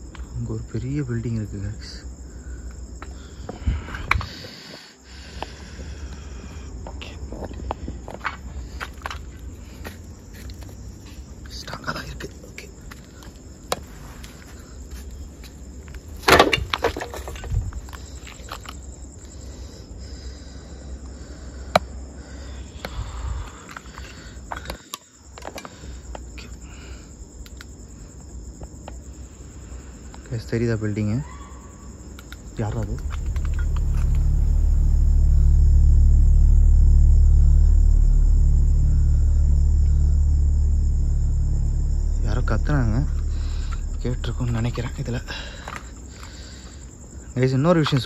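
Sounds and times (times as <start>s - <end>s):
crickets chirping: 0.0s - 48.0s
footsteps crunching over rubble: 6.9s - 11.5s
low rumble: 32.5s - 47.1s.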